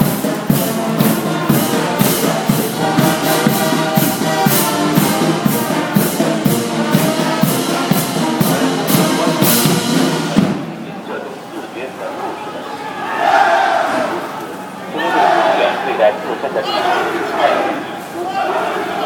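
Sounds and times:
brass playing a tune: 0:00.0 - 0:10.4
marching percussion beat: 0:00.0 - 0:10.7.

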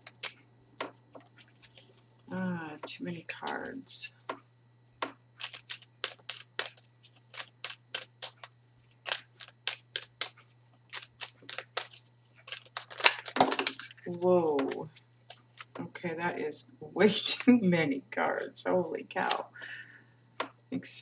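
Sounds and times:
cards being shuffled: 0:00.0 - 0:02.8, 0:05.0 - 0:15.8, 0:19.2 - 0:19.5.

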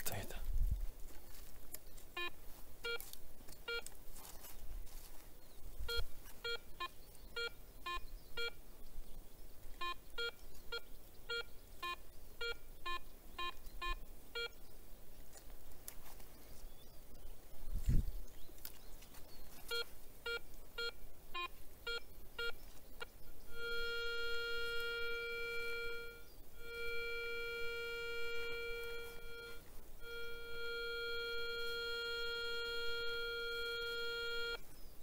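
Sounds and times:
metal detector beeping: 0:02.2 - 0:03.9, 0:05.9 - 0:08.6, 0:19.7 - 0:34.6.

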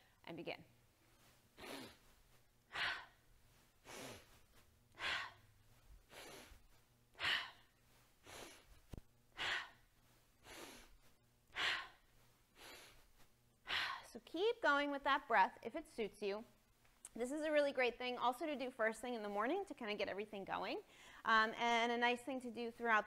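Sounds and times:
woman breathing hard: 0:01.6 - 0:14.1.

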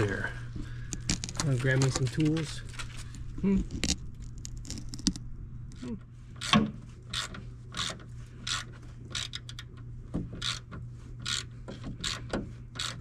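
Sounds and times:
ratchet clicking: 0:06.4 - 0:09.7, 0:10.4 - 0:13.0.

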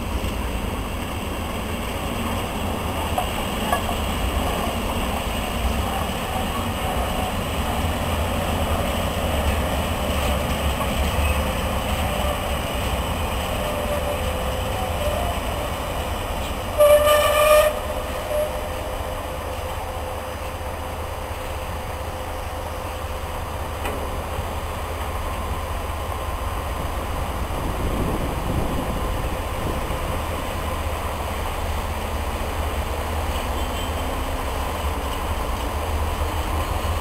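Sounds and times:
diesel locomotive rumbling: 0:00.0 - 0:37.0
train horn blast: 0:13.5 - 0:16.0, 0:16.7 - 0:20.5.

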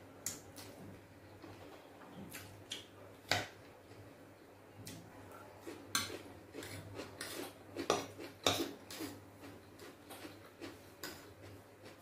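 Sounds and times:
chewing: 0:05.6 - 0:12.0.

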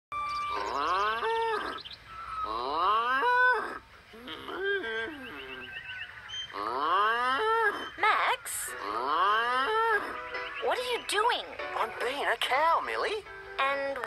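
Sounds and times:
person imitating cow moos: 0:02.4 - 0:05.7.

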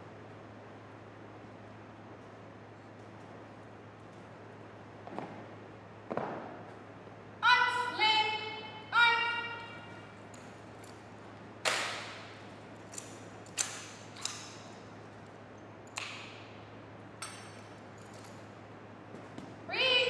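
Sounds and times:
slap on rifles: 0:11.6 - 0:12.3
rifle clacks echoing: 0:11.6 - 0:14.7.

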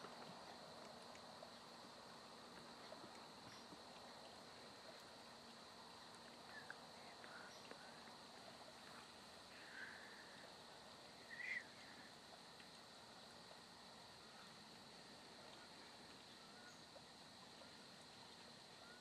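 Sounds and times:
faint steady hiss: 0:00.0 - 0:19.0
faint short bird chirps: 0:11.3 - 0:11.8.

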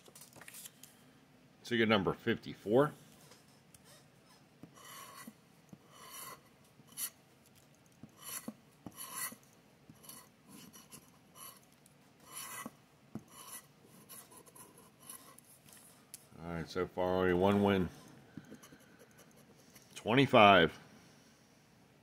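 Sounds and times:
scraping scratch-off ticket: 0:04.8 - 0:05.3.

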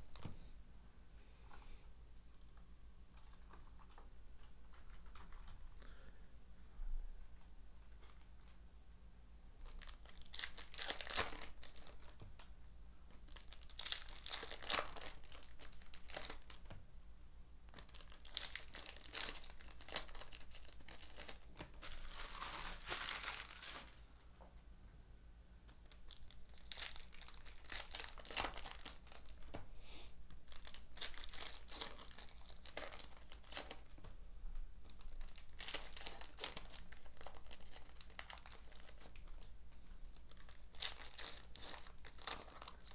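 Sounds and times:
foil wrappers tearing and crinkling: 0:09.6 - 0:12.2, 0:13.1 - 0:16.7, 0:17.7 - 0:24.0, 0:25.8 - 0:29.5, 0:30.4 - 0:33.9, 0:34.8 - 0:39.5, 0:40.1 - 0:42.9.

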